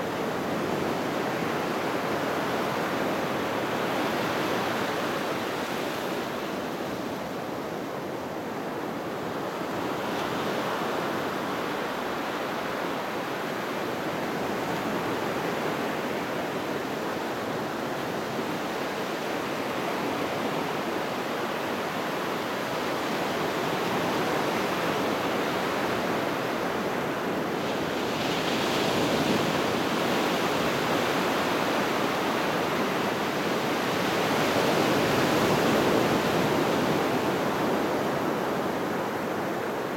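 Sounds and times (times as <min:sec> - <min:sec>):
ocean surf breaking on beach: 0:08.4 - 0:39.9.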